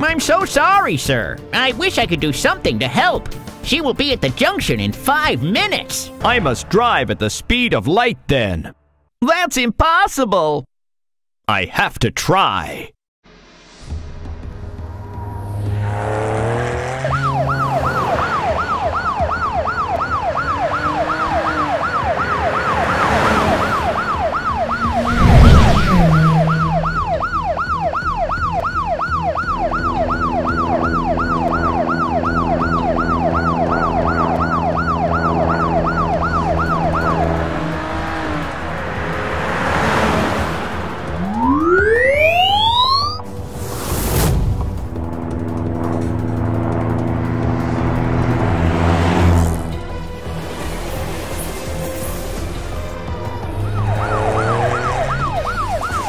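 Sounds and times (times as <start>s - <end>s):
police siren wailing: 15.0s - 43.6s, 44.8s - 56.0s
loud whoosh: 24.6s - 27.3s
low steady drone: 44.6s - 48.9s.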